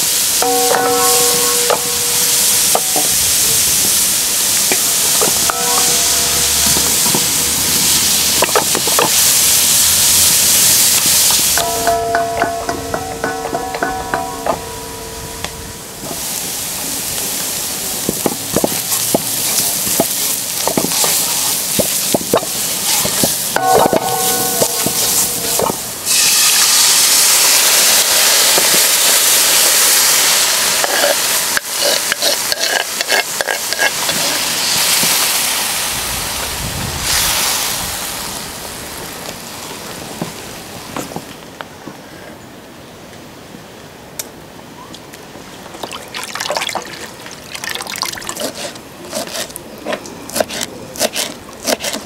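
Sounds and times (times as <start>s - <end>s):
vegetables frying in oil: 0.0s - 11.6s, 16.2s - 40.7s
loud sizzle of sauce: 0.0s - 12.9s, 15.9s - 41.0s
spoon scraping and clinking on pan: 5.2s - 7.4s, 22.9s - 26.2s.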